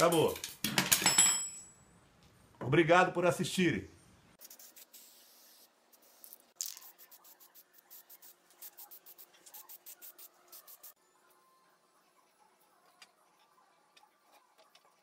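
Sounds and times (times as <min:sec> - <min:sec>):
spray-paint can hissing: 0:04.4 - 0:11.0.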